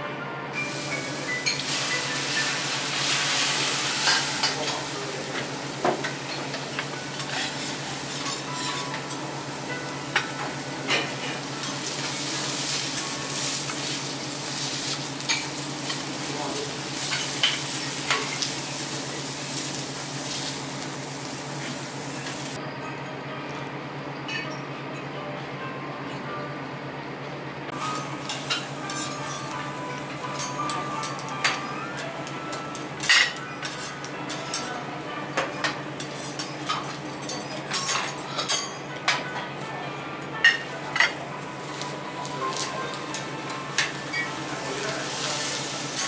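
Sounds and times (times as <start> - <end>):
food sizzling on a griddle: 0.6 - 22.6, 40.5 - 46.0.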